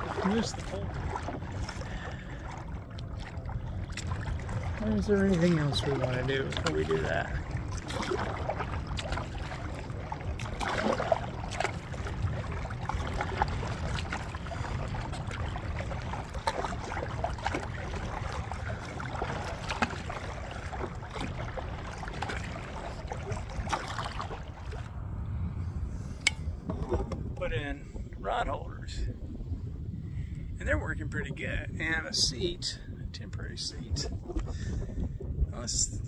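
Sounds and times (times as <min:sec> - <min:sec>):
paddle splashing in water: 0:00.0 - 0:25.0
wind rumble on microphone: 0:00.0 - 0:36.0.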